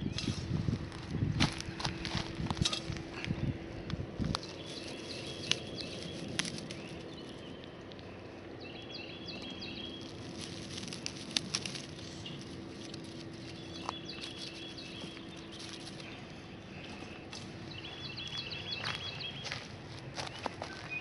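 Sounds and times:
faint steady hum: 0:00.0 - 0:21.0
songbird chirping: 0:03.2 - 0:21.0
straw rustling: 0:04.1 - 0:08.5, 0:09.3 - 0:20.9.

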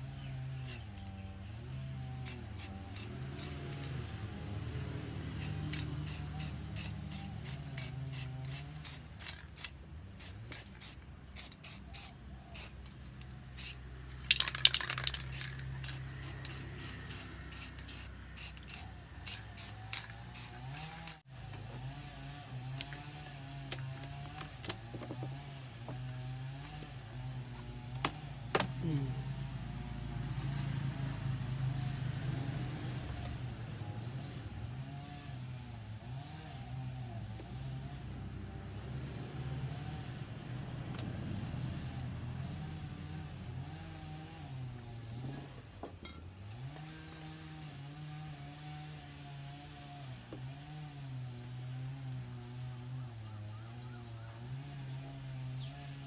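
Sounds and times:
spray paint can spritzes: 0:02.2 - 0:03.6, 0:05.4 - 0:12.8, 0:13.6 - 0:21.2.

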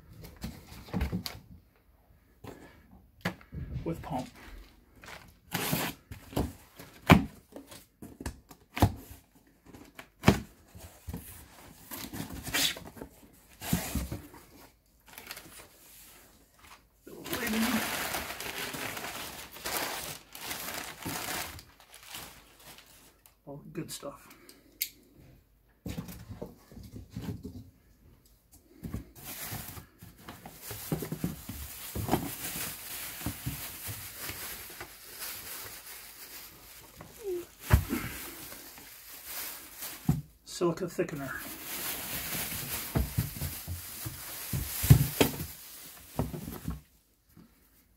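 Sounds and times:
paper packing rustling: 0:09.6 - 0:16.0, 0:16.6 - 0:23.3, 0:28.8 - 0:40.4, 0:41.4 - 0:46.9.

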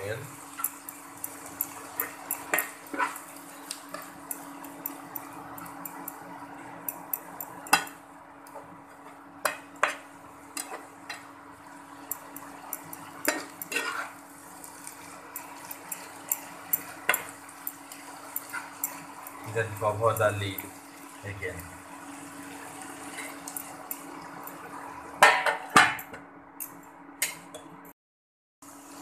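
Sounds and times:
spatula scraping a frying pan: 0:01.3 - 0:04.2, 0:12.4 - 0:20.0.

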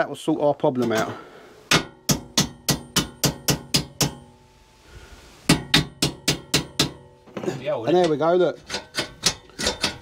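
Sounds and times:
hammer tapping on metal: 0:01.7 - 0:04.4, 0:05.5 - 0:07.1.

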